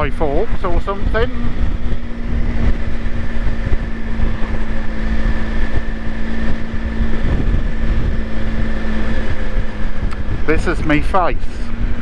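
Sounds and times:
vehicle motor humming: 0.0s - 12.0s
wind buffeting microphone: 0.0s - 12.0s.

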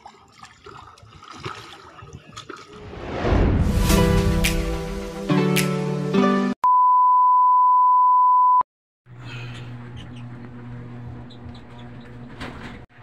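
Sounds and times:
high single-pitched beep: 6.6s - 8.6s.

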